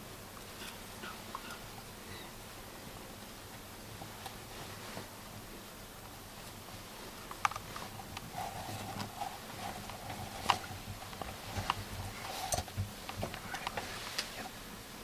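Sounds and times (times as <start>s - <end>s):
faint steady hum: 0.0s - 15.0s
light clicks and crunches: 6.4s - 14.6s.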